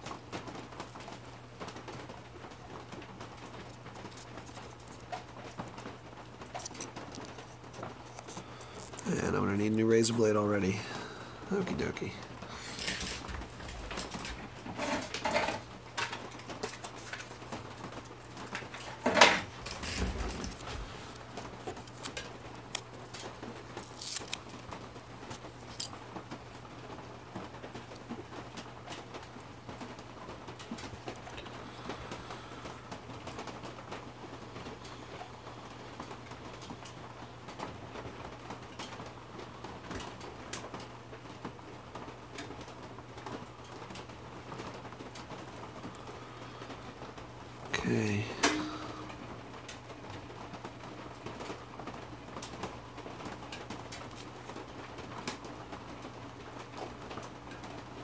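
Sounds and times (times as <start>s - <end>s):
steady low hum: 45.9s - 50.0s.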